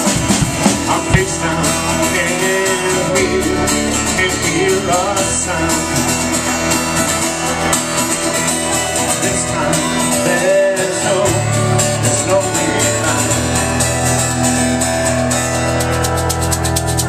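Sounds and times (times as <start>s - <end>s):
live band playing: 0.0s - 17.0s.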